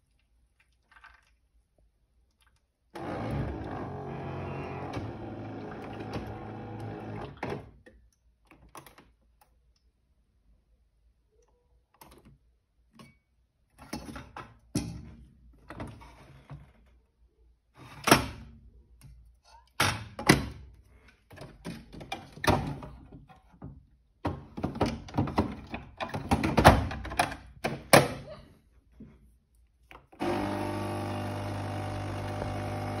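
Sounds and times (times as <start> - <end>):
coffee machine humming: 3.0 - 7.4, 30.2 - 33.0.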